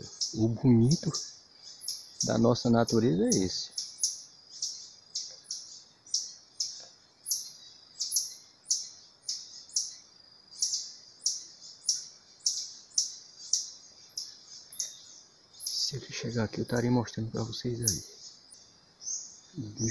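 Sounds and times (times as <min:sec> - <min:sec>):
high-pitched animal chirping calls: 0:05.5 - 0:09.9, 0:10.6 - 0:15.0.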